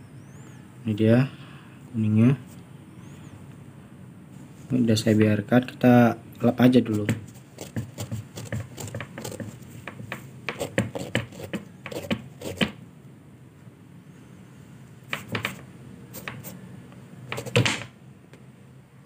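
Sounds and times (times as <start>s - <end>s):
cloth rubbing on sneaker: 6.8s - 9.8s, 17.3s - 17.6s.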